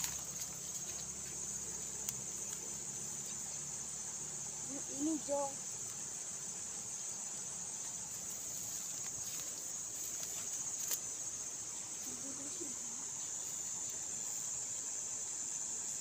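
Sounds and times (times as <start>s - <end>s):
hands rustling in grass: 0.0s - 3.6s, 7.8s - 11.2s
insects chirring: 0.0s - 16.0s.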